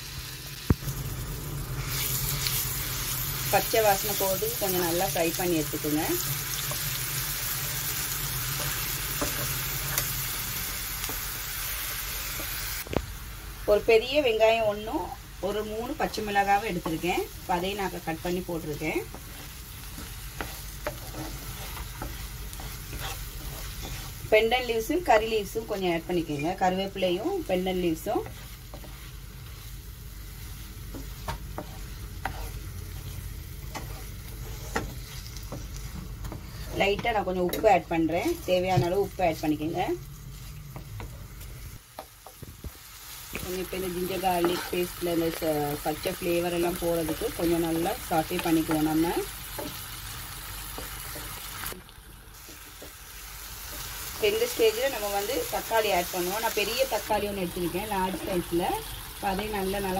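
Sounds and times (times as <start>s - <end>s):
paste sizzling in hot oil: 0.0s - 59.9s
spatula stirring and tapping pan: 8.5s - 10.1s, 18.0s - 29.8s, 30.5s - 39.1s, 40.7s - 45.4s, 46.5s - 49.9s, 50.6s - 51.8s
wooden spatula scraping pan: 18.8s - 24.3s, 27.7s - 29.7s, 30.6s - 37.2s, 44.1s - 45.0s.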